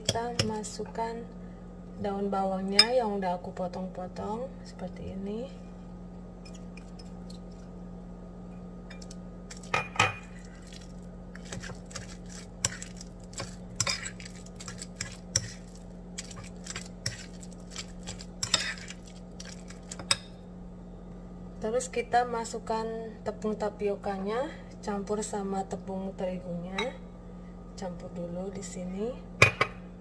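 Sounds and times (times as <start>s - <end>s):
cutlery scraping ceramic bowl: 11.4s - 20.2s.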